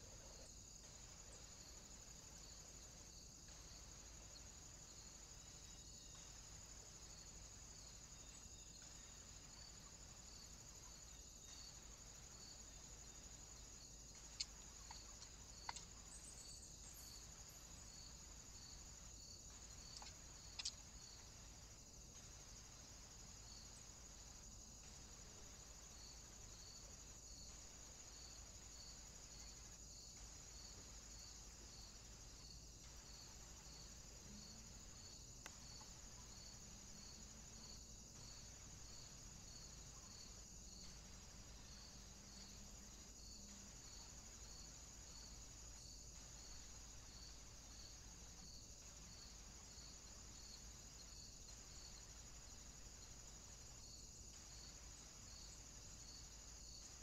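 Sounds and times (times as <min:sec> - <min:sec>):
faint clicks: 0:14.2 - 0:15.9, 0:19.9 - 0:20.8, 0:35.4 - 0:36.0.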